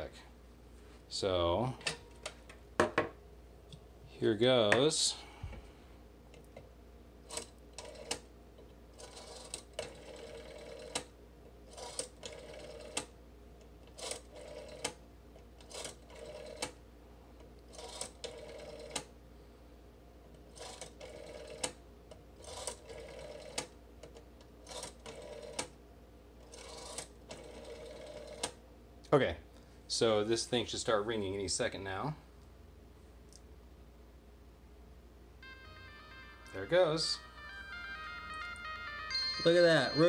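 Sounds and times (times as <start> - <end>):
rotary telephone dial whirring: 7.3 - 8.3, 9.0 - 11.1, 11.7 - 13.1, 13.9 - 15.0, 15.6 - 16.8, 17.7 - 19.1, 20.5 - 21.8, 22.4 - 23.7, 24.6 - 25.8, 26.4 - 28.6.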